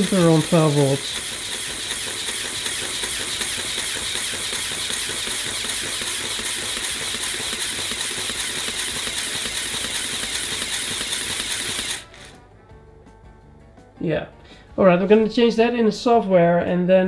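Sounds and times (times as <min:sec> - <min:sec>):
toy air compressor clattering: 0:00.0 - 0:12.4.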